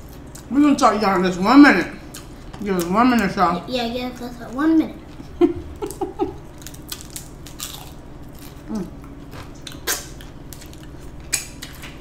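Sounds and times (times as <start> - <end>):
crunching hard taco shells: 5.9 - 12.0.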